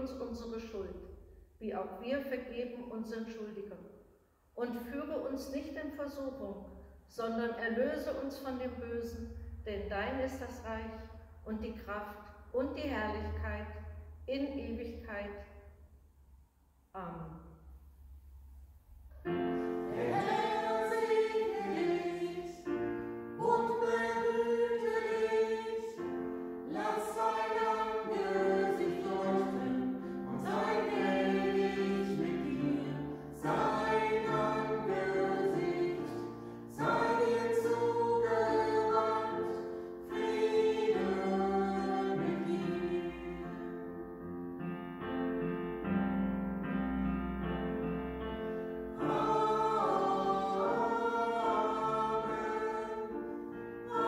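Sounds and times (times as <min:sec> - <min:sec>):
keyboard accompaniment: 0:19.2 - 0:54.0
singers singing in harmony: 0:19.5 - 0:43.8, 0:48.9 - 0:54.0.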